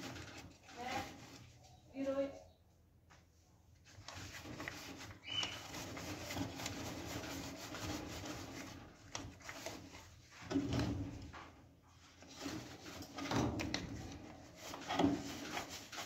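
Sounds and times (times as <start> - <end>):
steel wool scrubbing metal: 4.1 - 10.0, 14.1 - 16.0
short squeak: 5.2 - 5.6.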